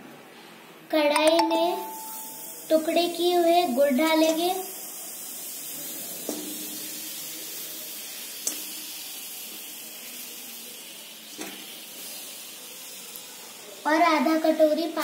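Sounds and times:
steady hiss: 0.3s - 15.0s.

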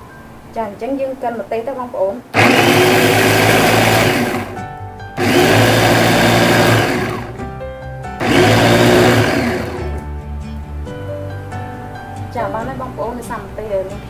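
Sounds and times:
electric food chopper whirring: 2.4s - 4.6s, 5.2s - 7.5s, 8.2s - 10.0s.

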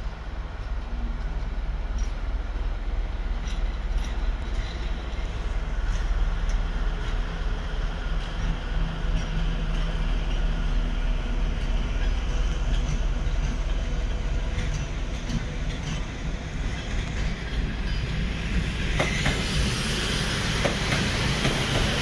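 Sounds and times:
diesel locomotive engine rumbling: 0.0s - 22.0s.

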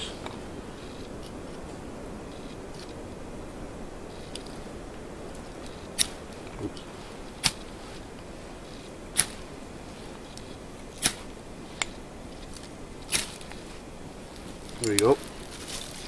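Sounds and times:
striker rasping down fire steel: 5.4s - 13.8s.

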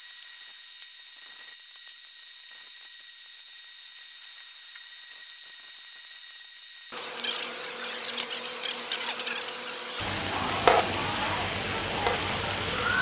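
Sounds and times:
meat sizzling on grill pan: 7.0s - 13.0s.

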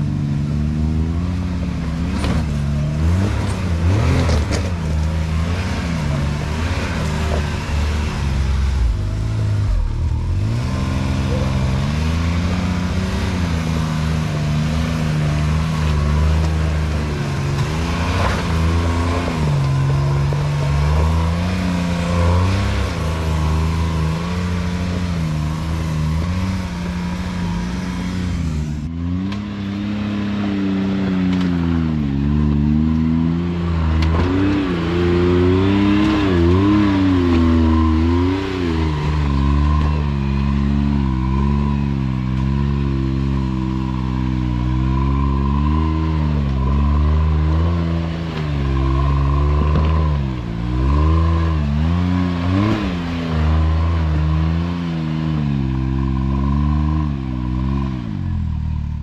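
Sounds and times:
utility vehicle engine revving: 0.0s - 59.0s.

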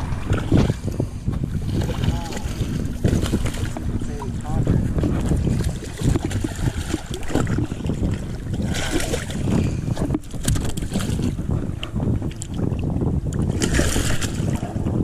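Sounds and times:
wind buffeting microphone: 0.0s - 15.0s
fish splashing water: 1.5s - 4.3s, 5.0s - 11.4s, 13.4s - 14.7s.

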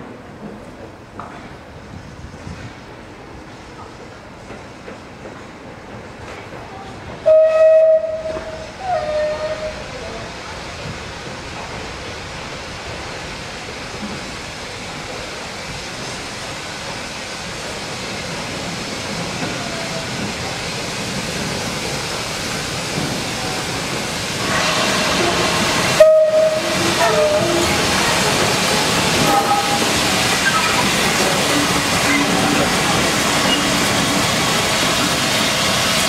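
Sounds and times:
steam train rumbling in tunnel: 0.0s - 36.0s
short squealing tones: 29.3s - 31.0s.

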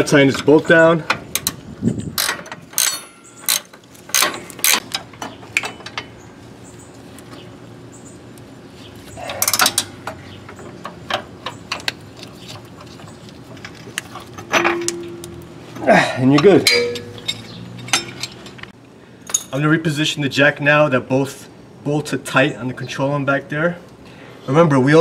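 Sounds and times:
metal knocks: 14.4s - 15.5s, 16.4s - 18.7s.

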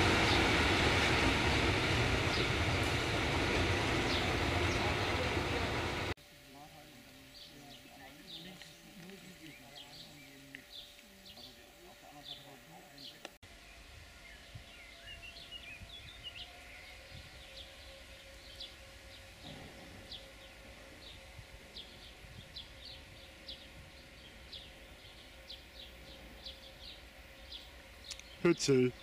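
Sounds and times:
distant diesel locomotive rumble: 0.0s - 29.0s
small birds chirping: 6.8s - 13.4s, 14.2s - 29.0s.

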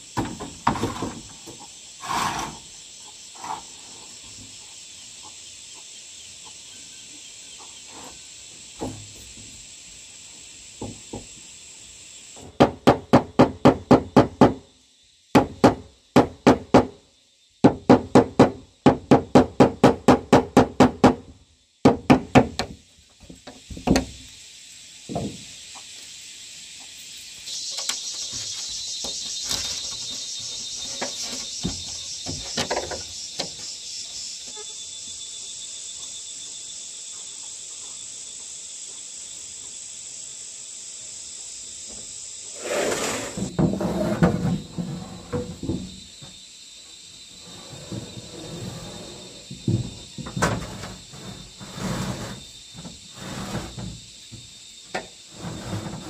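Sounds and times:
insects buzzing: 0.0s - 56.0s.

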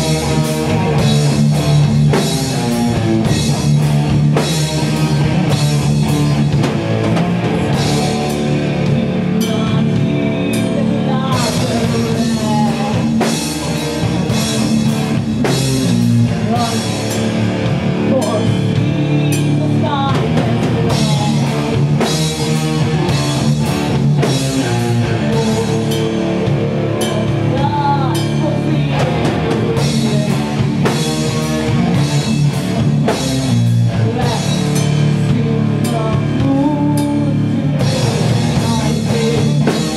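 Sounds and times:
drum kit hits: 0.0s - 10.2s
bass guitar: 0.0s - 39.9s
loud electric guitar: 0.0s - 39.9s.

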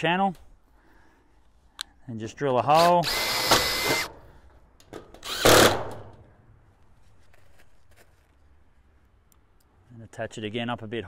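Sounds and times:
drill whining through metal: 2.7s - 4.1s, 5.2s - 5.8s.

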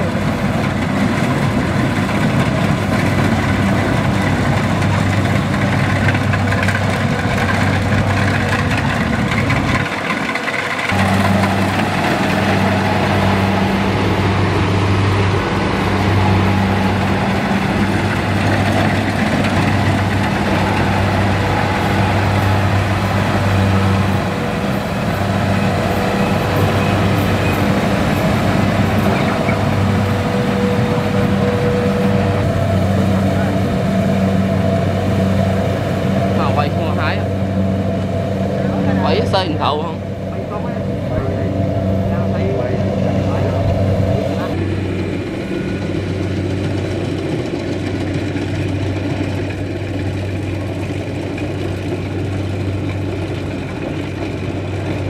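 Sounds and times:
combine harvester diesel engine running: 0.0s - 55.0s.

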